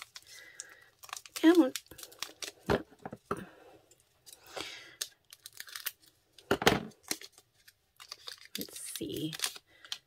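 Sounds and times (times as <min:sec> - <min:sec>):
scissors cutting wrapper: 0:00.0 - 0:02.7, 0:04.9 - 0:06.1, 0:07.0 - 0:10.0
wrapper tearing and crinkling: 0:00.0 - 0:02.7, 0:05.0 - 0:06.2, 0:06.9 - 0:10.0.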